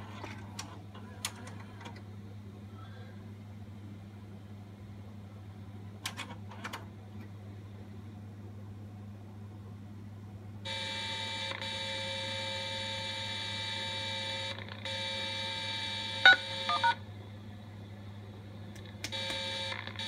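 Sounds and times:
low constant hum: 0:00.0 - 0:10.7, 0:16.2 - 0:20.0
short beeps: 0:16.3 - 0:17.0.

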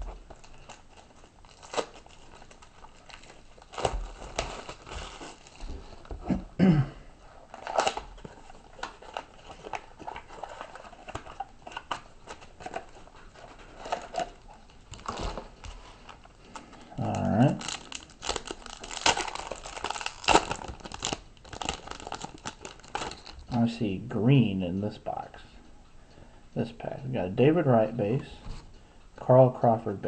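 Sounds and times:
wrapping crinkling: 0:00.0 - 0:06.4, 0:07.2 - 0:23.7
cardboard flaps tearing: 0:01.4 - 0:06.4, 0:17.0 - 0:23.3.

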